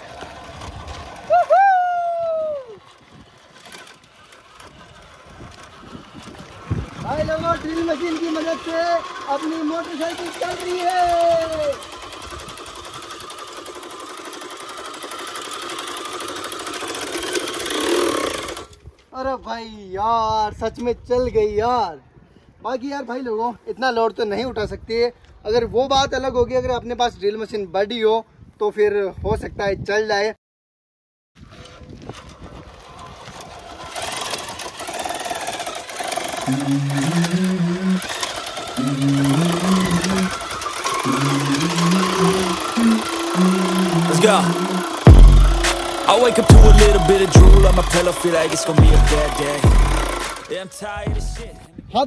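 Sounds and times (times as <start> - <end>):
electric drill motor whirring: 0.0 - 18.9, 31.4 - 51.6
dense buzzing rhythm: 38.8 - 40.4, 41.0 - 51.7
low synth riff: 43.1 - 50.4, 51.0 - 51.7.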